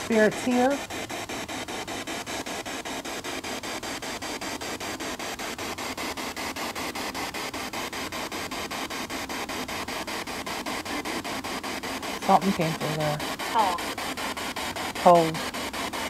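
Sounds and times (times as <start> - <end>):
choppy radio static: 0.0 - 0.8, 12.0 - 14.1, 15.0 - 15.4.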